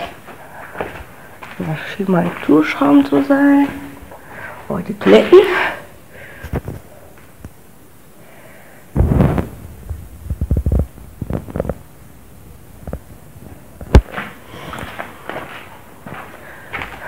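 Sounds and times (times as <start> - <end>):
dull low thumps and knocks: 9.0 - 11.8.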